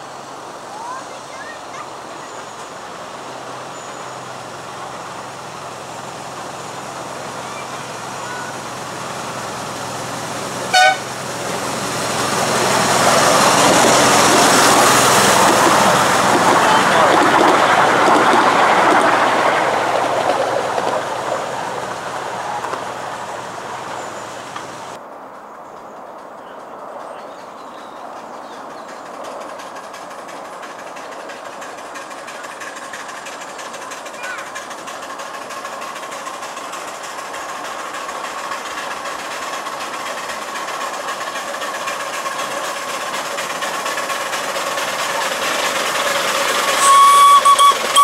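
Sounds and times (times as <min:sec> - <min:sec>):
miniature train running past: 0:00.0 - 0:48.0
locomotive horn toot: 0:10.7 - 0:11.1, 0:46.8 - 0:48.0.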